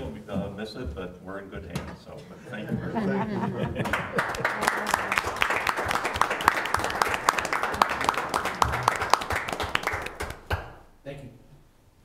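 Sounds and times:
crowd clapping: 0:03.0 - 0:10.8.

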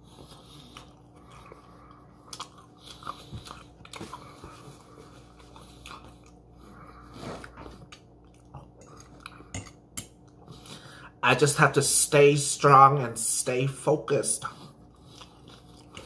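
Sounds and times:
person chewing food: 0:00.0 - 0:11.2, 0:14.4 - 0:16.0.

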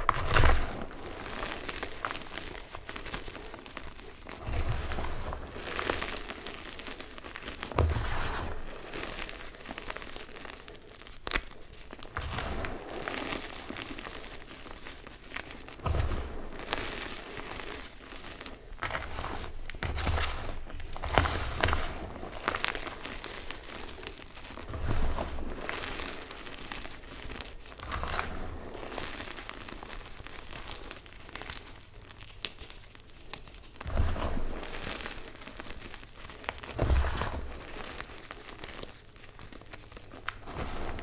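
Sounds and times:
hands squeezing gritty chalk: 0:00.0 - 0:41.0.

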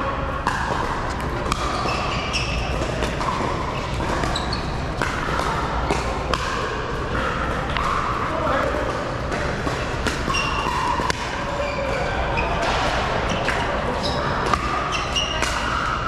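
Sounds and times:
murmur of voices: 0:00.0 - 0:16.0
paddles hitting plastic ball: 0:00.4 - 0:11.4.

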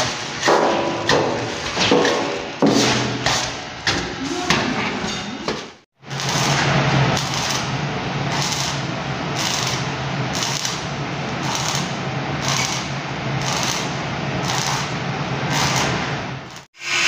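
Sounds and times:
arc welding crackling sizzle: 0:06.0 - 0:17.0.

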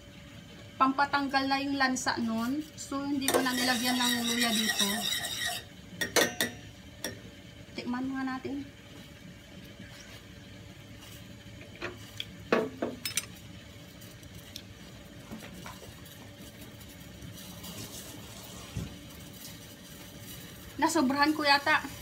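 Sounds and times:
utensils and dishes clinking: 0:03.3 - 0:07.2, 0:12.6 - 0:13.4.

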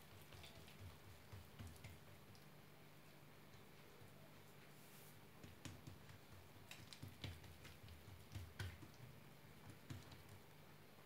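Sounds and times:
hands tapping dough on countertop: 0:00.0 - 0:02.2, 0:05.4 - 0:10.5.

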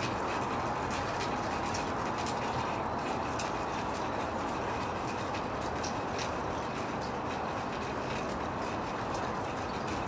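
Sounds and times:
rain falling: 0:00.0 - 0:10.0.

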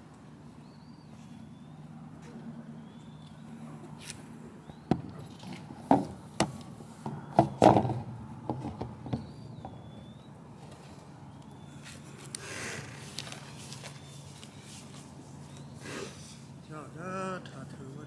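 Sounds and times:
irregular knocks and thumps: 0:04.9 - 0:09.8.

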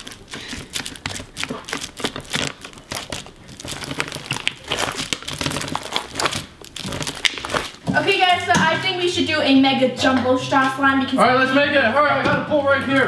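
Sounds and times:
slime with straws crackling: 0:00.0 - 0:08.5.

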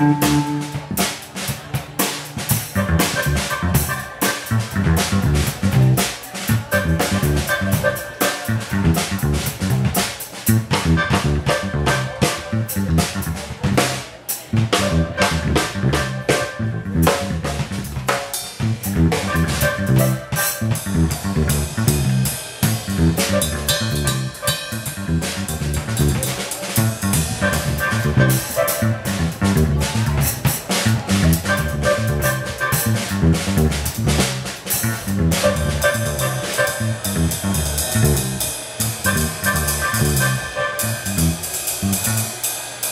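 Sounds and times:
electric organ chords: 0:00.0 - 0:01.1, 0:31.4 - 0:33.7, 0:34.9 - 0:42.2
drum kit: 0:00.0 - 0:42.9
electric bass: 0:00.0 - 0:42.9.

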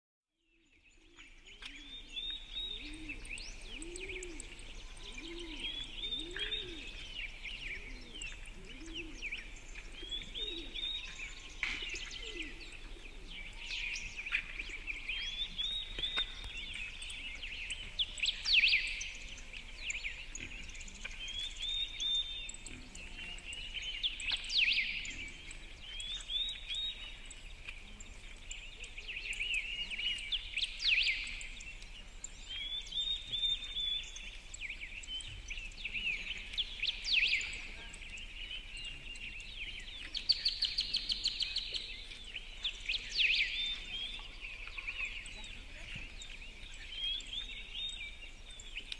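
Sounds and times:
birds singing and chirping: 0:00.4 - 0:48.9
low cooing: 0:02.7 - 0:07.0, 0:07.7 - 0:09.3, 0:12.1 - 0:13.5.

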